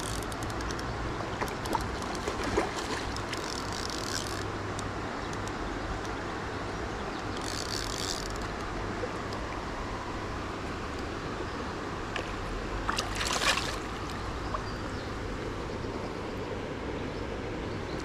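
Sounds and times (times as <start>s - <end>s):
water splashing at bank: 1.3s - 3.7s, 12.2s - 14.8s
river water rushing: 8.3s - 15.9s.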